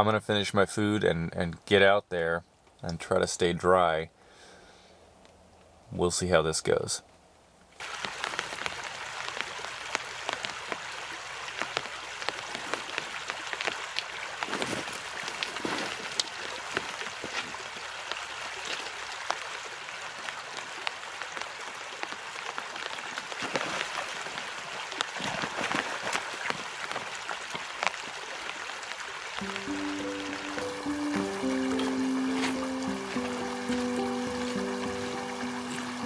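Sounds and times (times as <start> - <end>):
rain drops ticking: 7.8 - 36.0
shallow rocky river rushing: 29.4 - 36.0.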